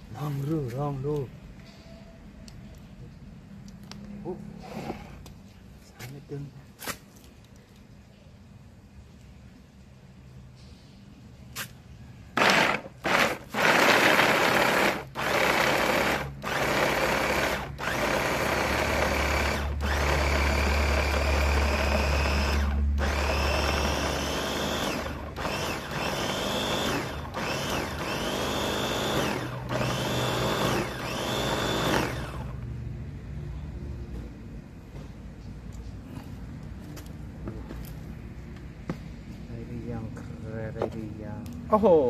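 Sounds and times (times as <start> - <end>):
food chopper motor whine: 12.4 - 32.6.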